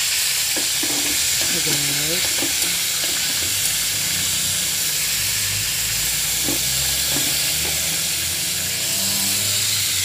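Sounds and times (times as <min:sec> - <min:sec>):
fish sizzling in hot oil: 0:00.0 - 0:10.0
oil popping: 0:00.5 - 0:04.4, 0:05.4 - 0:08.3.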